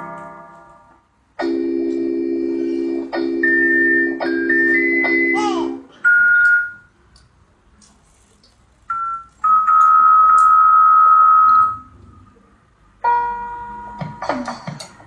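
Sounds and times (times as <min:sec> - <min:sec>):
electronic keyboard held tones: 0:01.4 - 0:05.4, 0:06.0 - 0:06.9, 0:08.9 - 0:11.9.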